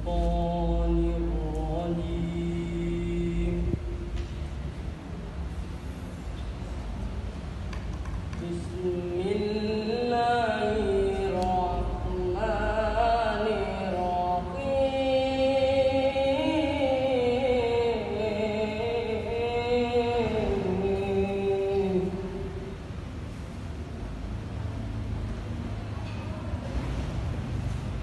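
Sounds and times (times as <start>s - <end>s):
boy reciting melodically: 0.0s - 4.2s, 8.3s - 22.8s.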